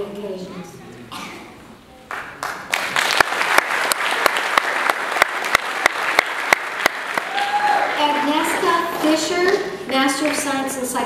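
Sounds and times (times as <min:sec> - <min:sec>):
person clapping close by: 0:02.1 - 0:07.5
audience applauding: 0:02.1 - 0:09.2.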